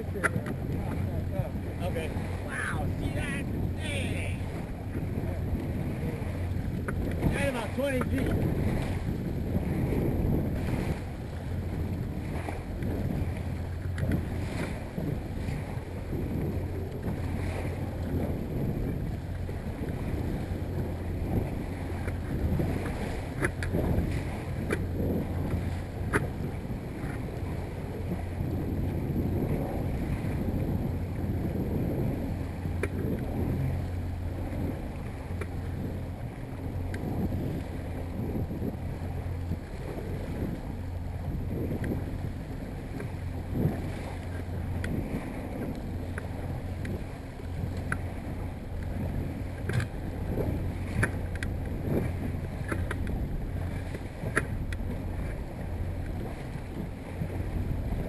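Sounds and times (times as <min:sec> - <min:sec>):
outboard motor running: 0:00.0 - 0:58.0
water washing against boat hull: 0:00.0 - 0:58.0
wind on microphone: 0:00.0 - 0:58.0.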